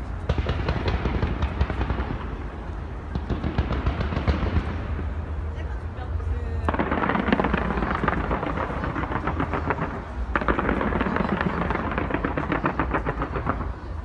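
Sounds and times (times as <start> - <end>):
steady low rumble: 0.0 - 14.0
fireworks crackling pops: 6.6 - 14.0.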